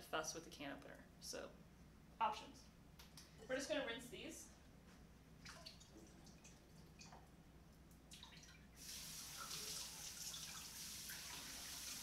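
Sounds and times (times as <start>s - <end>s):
tap water running over beans: 8.1s - 12.0s.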